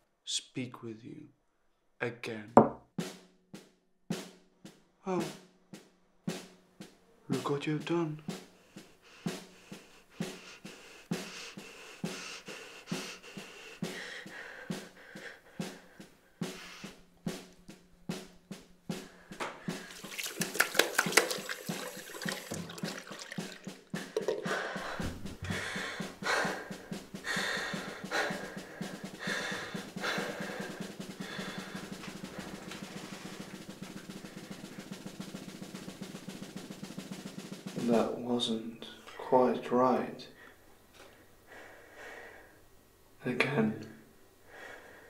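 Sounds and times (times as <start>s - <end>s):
drum hits: 2.5s - 38.3s
drum roll: 2.6s - 39.0s
ticking beat: 3.0s - 38.3s.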